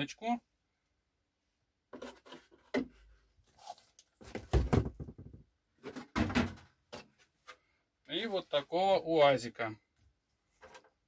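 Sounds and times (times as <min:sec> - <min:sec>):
parts thumping on cardboard box: 0:04.2 - 0:06.7
plastic parts knocking and rattling: 0:04.2 - 0:07.1.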